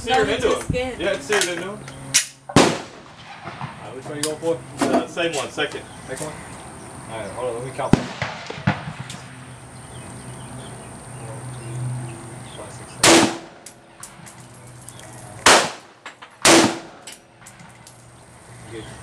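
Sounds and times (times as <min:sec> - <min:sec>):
rifle shots echoing: 0:02.6 - 0:03.8, 0:07.9 - 0:09.5, 0:15.4 - 0:18.0.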